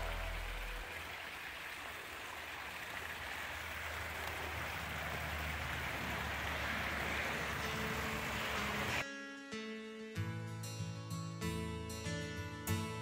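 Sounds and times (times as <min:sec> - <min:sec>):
small waterfall splashing: 0:00.0 - 0:09.0.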